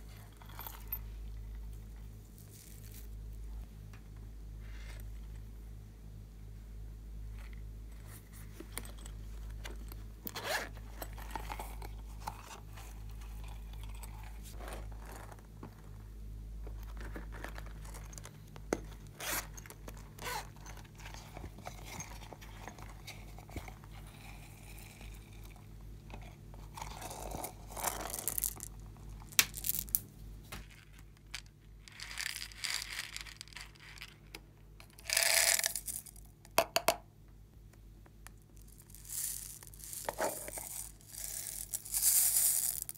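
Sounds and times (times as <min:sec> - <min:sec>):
faint low hum: 0:00.0 - 0:42.9
zipper being pulled: 0:10.3 - 0:10.8.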